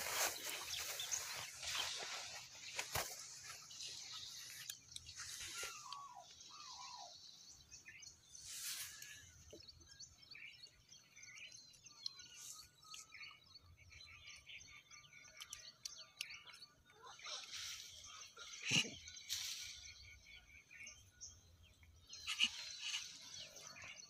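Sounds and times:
rustling noise: 0:00.0 - 0:03.8
small birds chirping: 0:00.0 - 0:24.0.

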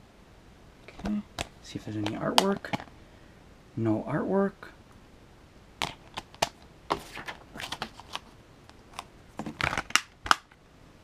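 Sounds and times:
plastic case clicking and rattling: 0:05.8 - 0:10.5.

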